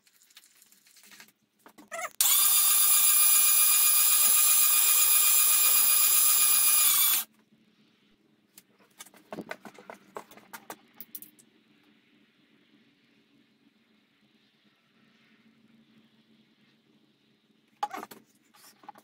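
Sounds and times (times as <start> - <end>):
starter motor whining: 2.2 - 7.2.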